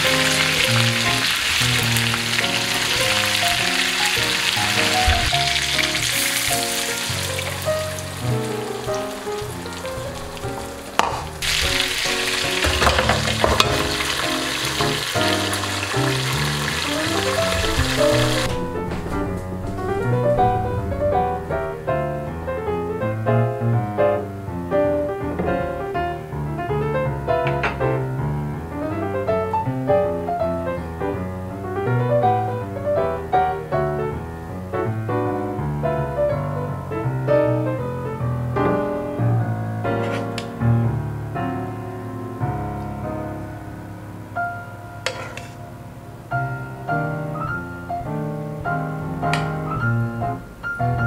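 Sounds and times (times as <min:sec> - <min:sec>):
piano music: 0:00.0 - 0:51.0.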